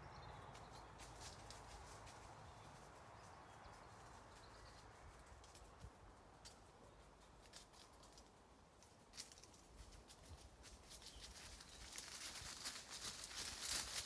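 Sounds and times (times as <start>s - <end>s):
dog paws digging in soil: 9.1s - 14.0s.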